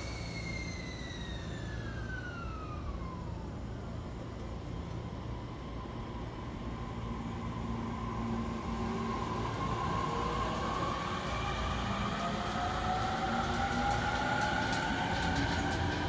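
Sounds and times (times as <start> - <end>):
electric train motor whine: 0.0 - 16.0
train running rumble: 3.9 - 16.0.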